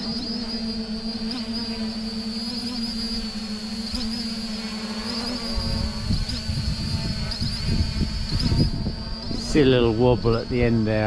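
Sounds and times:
drone propeller hum and whine: 0.0 - 11.0.

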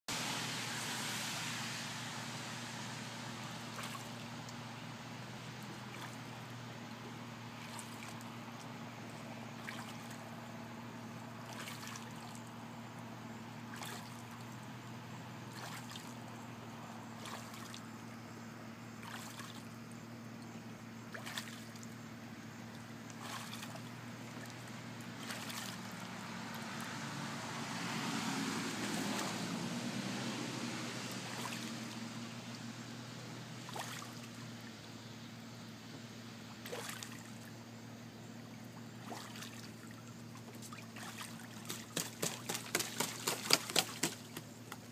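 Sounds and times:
low hum: 0.0 - 41.9
broad rush of noise: 0.1 - 19.2, 23.8 - 35.4
water splashing in a pool: 0.1 - 35.7, 36.3 - 44.9.

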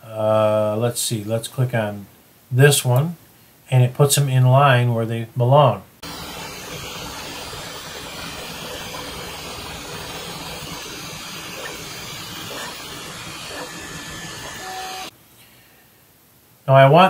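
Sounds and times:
printer fans whirring: 6.0 - 15.1.

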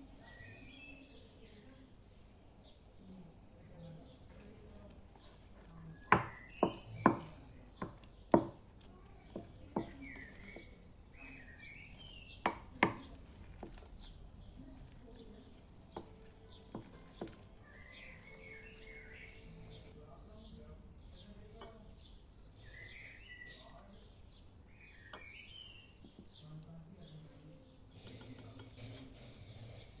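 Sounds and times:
spoon stirring thick mixture: 3.6 - 30.0
wooden spoon knocking ceramic bowl: 6.0 - 8.6, 9.3 - 10.7, 12.4 - 13.9.

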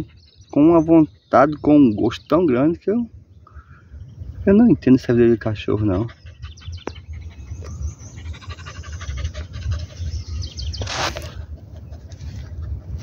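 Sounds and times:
dog panting: 0.0 - 1.0, 5.3 - 10.7, 11.4 - 13.0
small birds chirping: 0.0 - 13.0
wind rumble on microphone: 0.0 - 13.0.

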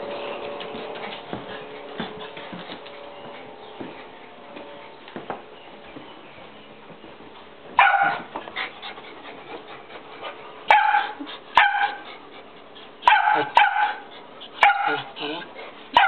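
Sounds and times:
dog barking: 7.8 - 8.3, 10.7 - 12.0, 13.0 - 16.0.

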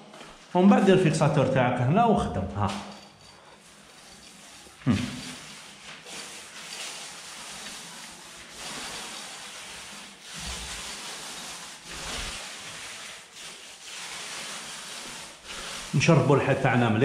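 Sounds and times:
paint roller swishing on wall: 0.0 - 17.0.

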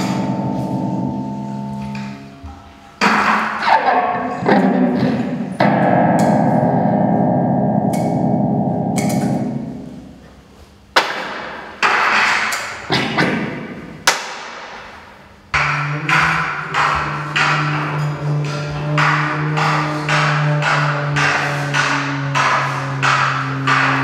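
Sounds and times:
dense buzzing chord: 0.0 - 2.8, 4.0 - 10.4
sharp struck ringing notes: 0.0 - 10.3.

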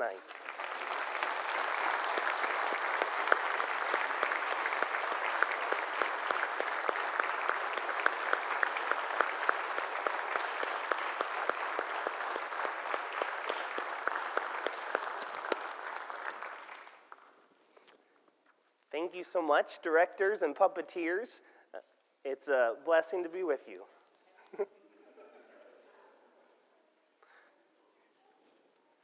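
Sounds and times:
congregation applauding: 0.0 - 17.6.

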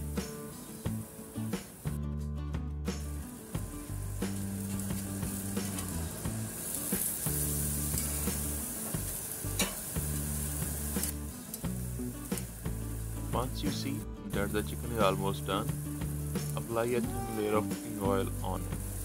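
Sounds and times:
chicken sizzling on grill: 0.0 - 2.1, 2.9 - 19.0
background music with bass: 0.0 - 19.0
metal tongs clicking on grate: 9.6 - 9.8.

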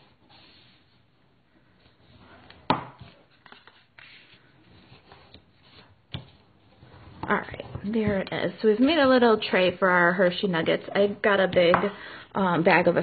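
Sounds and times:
paper rustling: 1.6 - 6.4.

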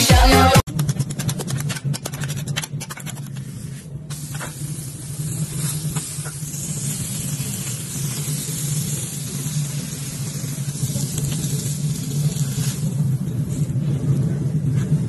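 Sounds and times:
burger patty sizzling on griddle: 4.1 - 13.6.

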